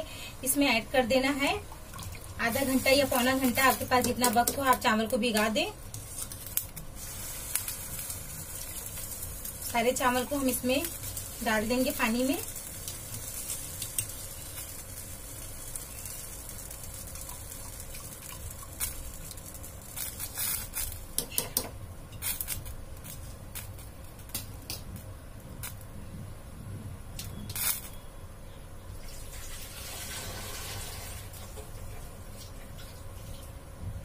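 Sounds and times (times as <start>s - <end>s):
water boiling in pot: 0.1s - 21.4s, 28.9s - 33.6s.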